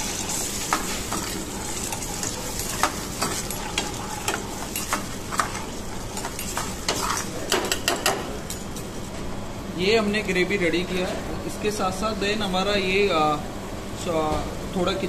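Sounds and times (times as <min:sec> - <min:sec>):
gravy sizzling in a frying pan: 0:00.0 - 0:07.5
ladle scraping against pan: 0:00.0 - 0:07.5.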